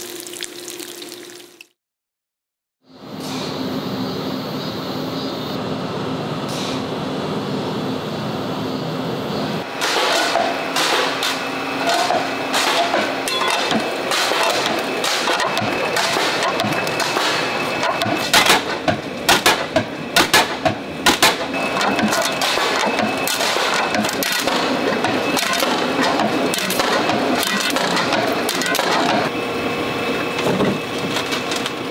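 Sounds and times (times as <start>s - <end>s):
roller machine clattering: 9.7s - 29.3s.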